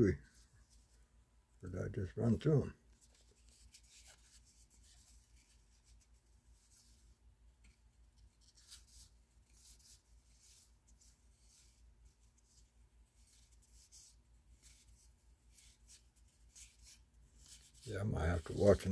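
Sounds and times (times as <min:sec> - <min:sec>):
trading cards rustling and sliding: 0:02.2 - 0:11.8.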